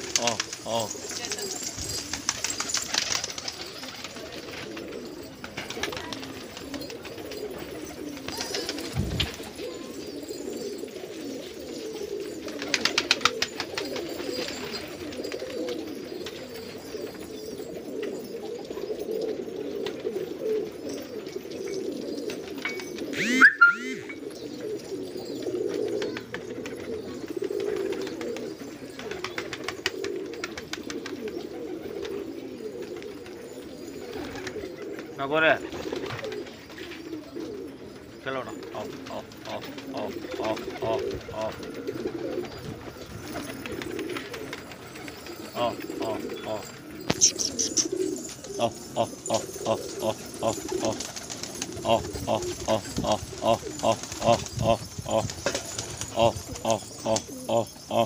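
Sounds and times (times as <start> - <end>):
pigeons cooing: 0.0 - 58.0.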